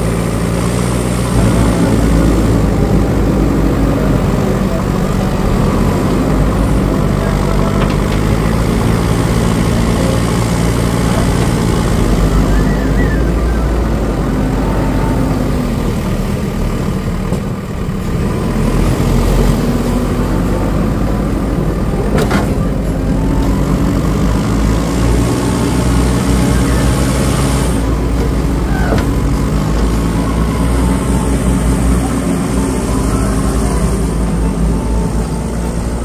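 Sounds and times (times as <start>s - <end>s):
diesel engine running: 0.0s - 36.0s.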